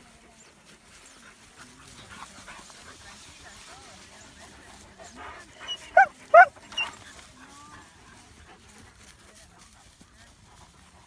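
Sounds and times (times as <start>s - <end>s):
dog barking: 5.7s - 6.9s.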